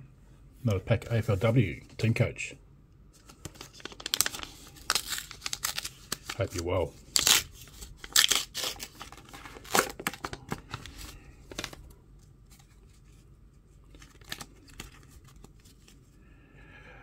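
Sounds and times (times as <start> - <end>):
cards rustling: 3.1 - 16.2
card pack wrapper crinkling: 3.2 - 11.9, 13.8 - 16.0.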